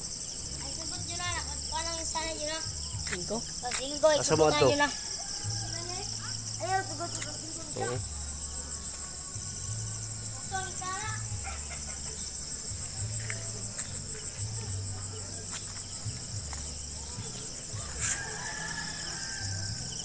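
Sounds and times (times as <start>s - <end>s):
crickets and insects trilling: 0.0s - 20.0s.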